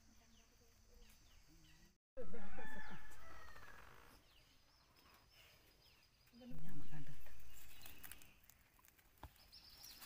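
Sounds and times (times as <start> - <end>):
rooster crowing: 2.2 - 3.9
faint small birds chirping: 3.5 - 10.0.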